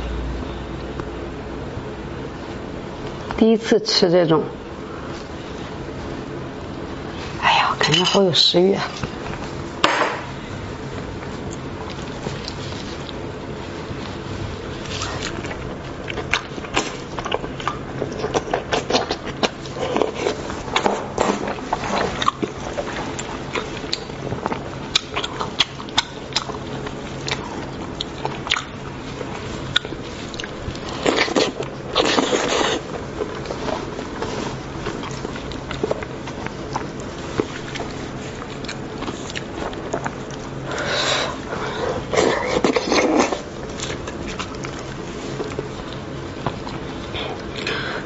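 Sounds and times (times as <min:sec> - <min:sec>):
person chewing meat: 0:10.8 - 0:48.0
meat tearing wet clicks: 0:21.5 - 0:32.3.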